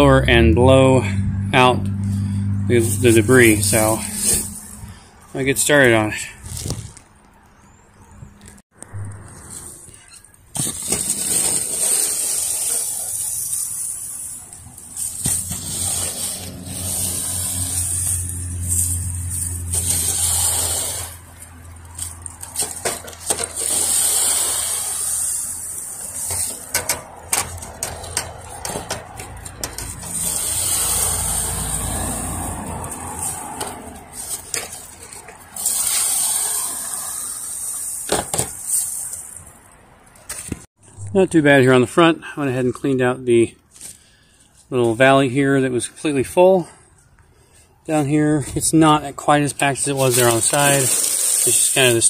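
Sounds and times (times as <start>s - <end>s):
pine straw rustling: 2.2s - 5.0s, 10.8s - 39.6s, 49.6s - 52.0s
brush scraping gutter mesh: 2.7s - 7.0s, 9.3s - 39.4s, 47.9s - 52.0s.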